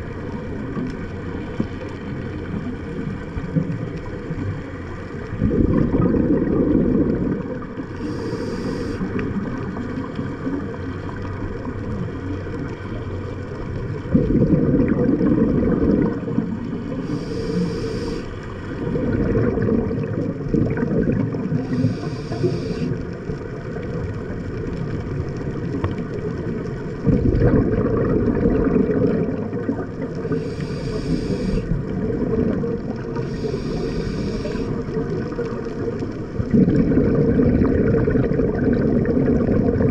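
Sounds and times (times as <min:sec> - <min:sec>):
bubbling exhales underwater: 0:00.0 - 0:39.9
low rumble of water: 0:00.0 - 0:39.9
scuba regulator hiss: 0:08.0 - 0:09.1, 0:16.9 - 0:18.4, 0:21.6 - 0:23.0, 0:30.3 - 0:31.8, 0:33.2 - 0:34.8.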